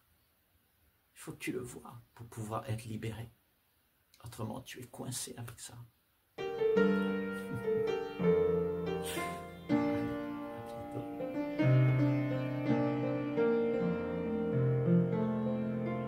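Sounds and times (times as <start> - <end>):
slow piano music: 6.4 - 16.0.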